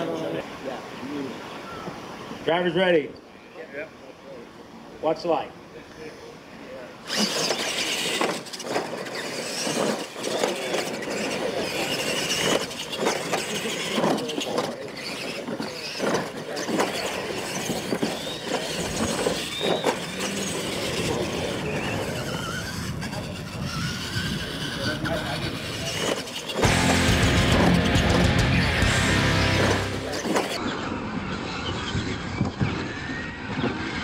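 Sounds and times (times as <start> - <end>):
electric motors whining: 7.0 - 34.0
tyres churning dirt: 7.0 - 34.0.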